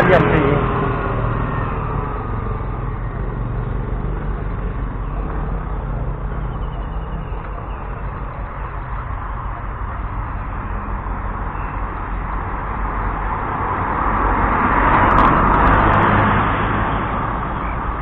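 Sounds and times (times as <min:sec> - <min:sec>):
car passing by: 0:00.0 - 0:18.0.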